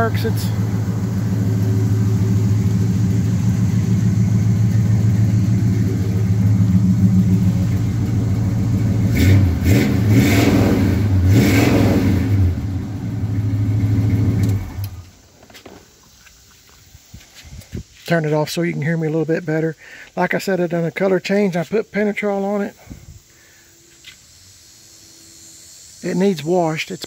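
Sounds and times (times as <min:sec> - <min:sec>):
engine revving: 0:00.0 - 0:15.1
car engine idling: 0:00.0 - 0:15.3.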